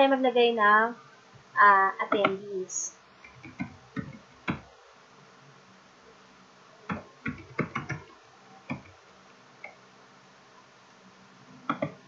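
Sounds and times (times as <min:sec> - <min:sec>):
keyboard keystroke clicks: 0:06.9 - 0:08.1, 0:11.7 - 0:12.0.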